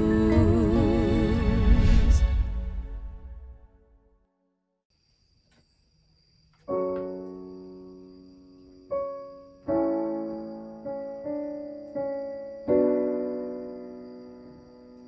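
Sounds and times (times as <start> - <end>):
digital piano chords: 6.7 - 15.0.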